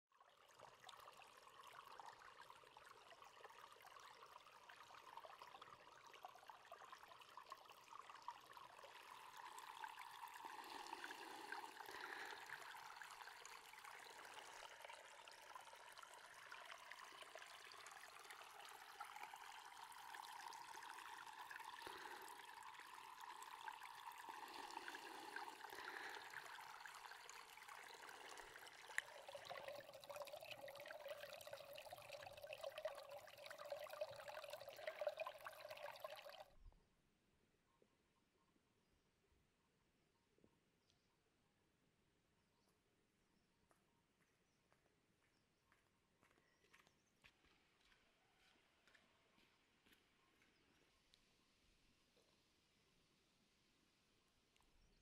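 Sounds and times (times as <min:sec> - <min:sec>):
water trickling: 0:00.2 - 0:36.6.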